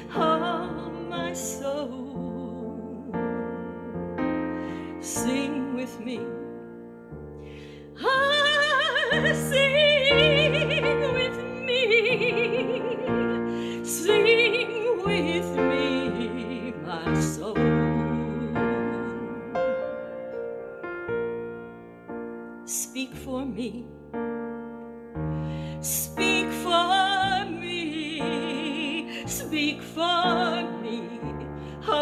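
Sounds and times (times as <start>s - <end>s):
woman singing a hymn: 0.0s - 4.0s, 4.9s - 6.5s, 8.0s - 19.6s, 22.7s - 23.9s, 25.8s - 32.0s
piano chords: 0.0s - 32.0s.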